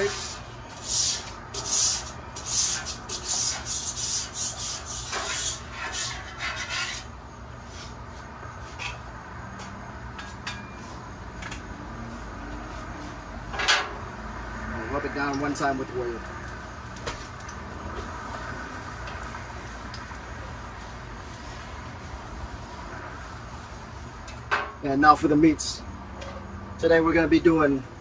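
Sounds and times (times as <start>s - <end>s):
scraper scraping steel griddle: 0.0s - 8.0s.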